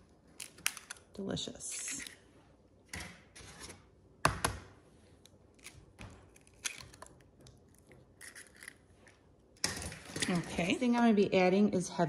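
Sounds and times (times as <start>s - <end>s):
eggshell clicks and crackles: 5.5s - 8.8s.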